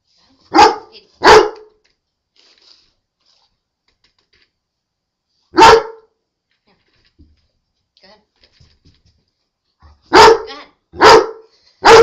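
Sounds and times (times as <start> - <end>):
dog barking loudly: 0.5 - 1.7, 5.5 - 6.1, 10.0 - 12.0.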